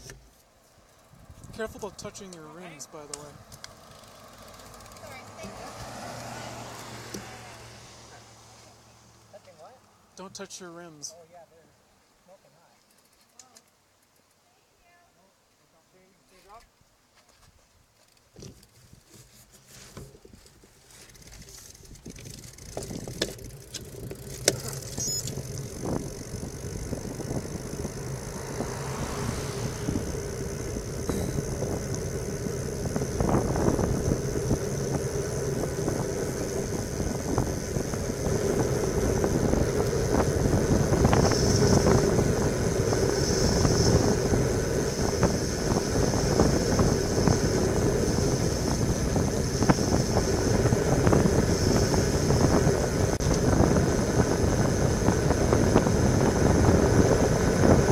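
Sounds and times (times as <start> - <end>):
bike tyres humming on asphalt: 0.0 - 10.2, 17.8 - 57.9
wind rushing over microphone: 1.1 - 2.3, 21.8 - 57.9.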